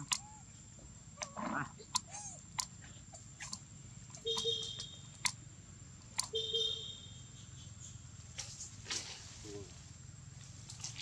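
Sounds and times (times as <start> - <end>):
short calls: 1.2 - 5.4.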